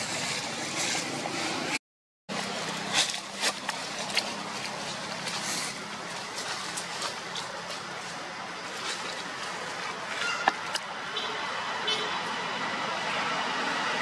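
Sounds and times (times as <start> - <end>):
road traffic rumble: 0.0 - 14.0.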